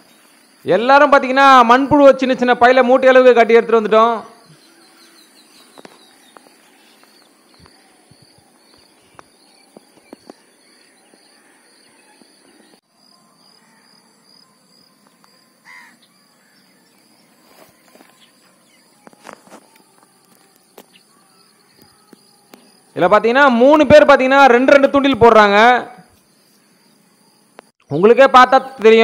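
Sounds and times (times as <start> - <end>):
high insect drone: 4.3 - 23.5, 26.0 - 27.8.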